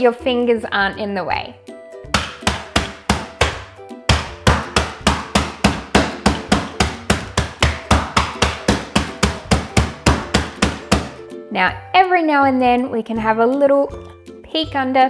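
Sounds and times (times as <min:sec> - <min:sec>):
rolling pin whacking biscuits: 0:02.1 - 0:11.2.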